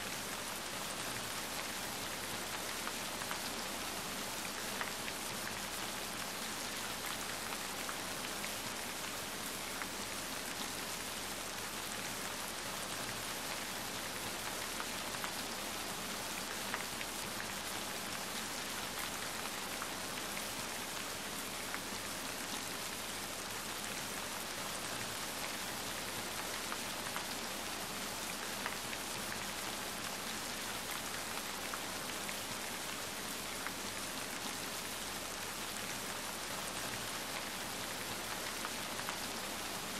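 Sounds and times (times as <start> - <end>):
steady rain patter: 0.0 - 39.9.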